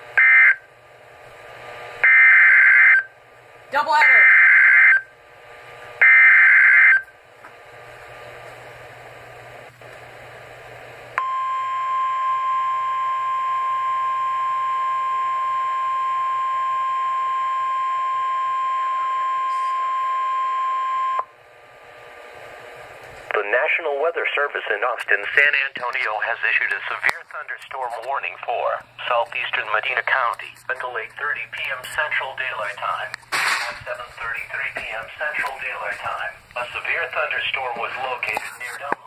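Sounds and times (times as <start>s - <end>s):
steady warning alarm tone: 0.0s - 0.7s, 1.9s - 3.2s, 3.9s - 5.2s, 6.0s - 7.2s, 11.2s - 21.4s
warbling data burst: 6.0s - 7.1s.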